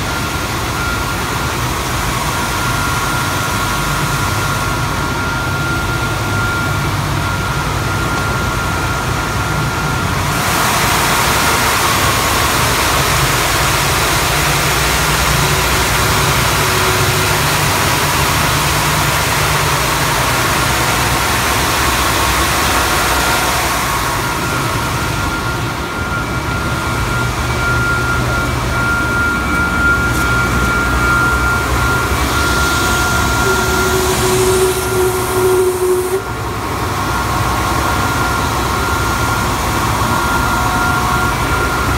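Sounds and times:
belt sander hum and whine: 0:00.0 - 0:41.9
sander hiss: 0:29.4 - 0:36.3.

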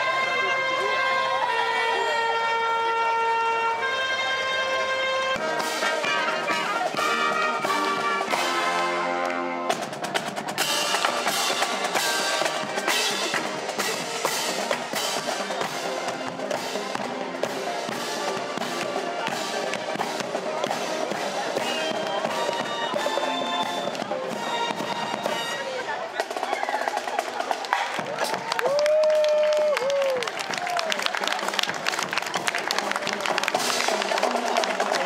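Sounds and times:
marching band brass chords: 0:00.0 - 0:28.6, 0:30.3 - 0:35.0
snare and bass drum drumming: 0:09.7 - 0:28.8.

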